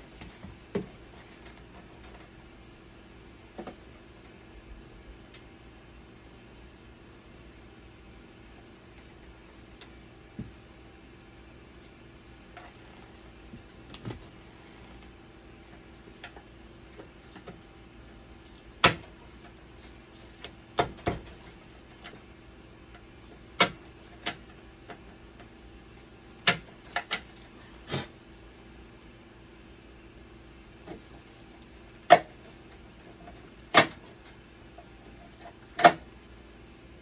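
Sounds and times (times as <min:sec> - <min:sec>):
machine low hum: 0:00.0 - 0:37.0
sharp clicks and knocks: 0:23.6 - 0:25.0, 0:26.4 - 0:27.4, 0:32.0 - 0:34.4.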